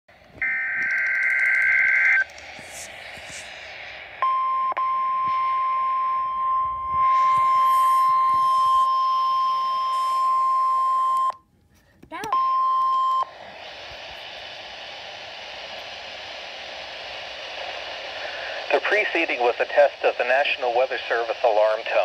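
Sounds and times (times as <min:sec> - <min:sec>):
radio hiss: 0:00.2 - 0:10.6, 0:13.2 - 0:22.0
steady warning alarm tone: 0:00.4 - 0:02.9, 0:04.2 - 0:11.4
high digital data tones: 0:00.4 - 0:03.6.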